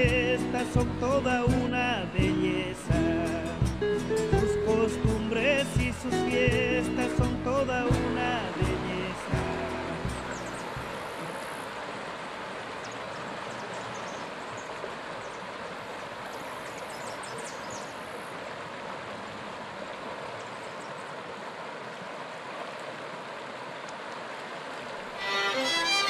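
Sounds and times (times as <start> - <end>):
river rushing over stones: 5.6 - 26.0.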